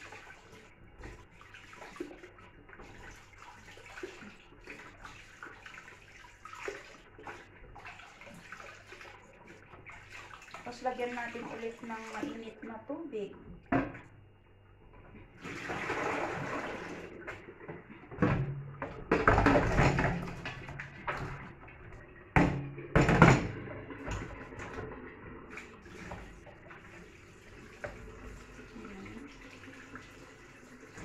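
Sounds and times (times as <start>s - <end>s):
water running into a sink: 0.0s - 14.2s, 14.9s - 31.0s
metal pot clanking against sink: 18.1s - 21.5s, 22.3s - 24.9s.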